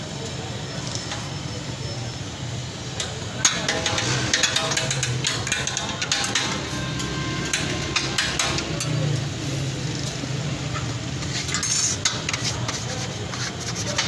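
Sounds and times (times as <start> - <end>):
metal spatulas scraping griddle: 10.7 - 14.0.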